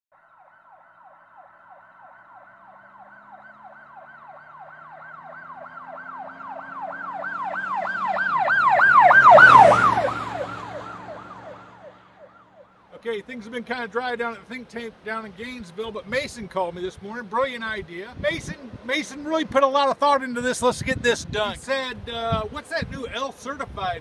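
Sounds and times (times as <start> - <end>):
siren yelping: 0.1 - 13.0
vehicle rumble: 0.8 - 24.0.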